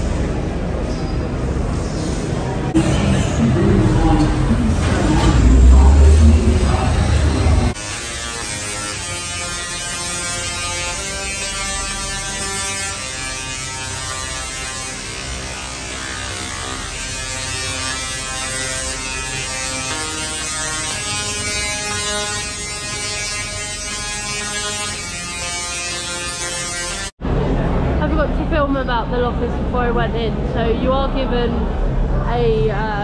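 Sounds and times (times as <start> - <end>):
tesla coil electric buzz: 2.4 - 27.2.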